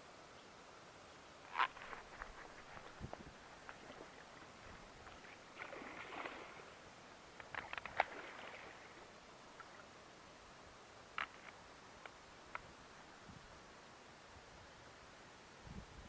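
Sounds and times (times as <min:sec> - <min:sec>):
fish splashing at water surface: 0:03.6 - 0:06.7.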